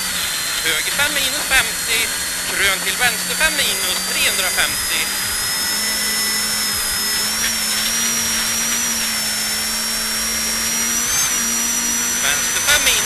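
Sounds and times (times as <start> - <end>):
car engine at high revs: 0.0 - 13.0.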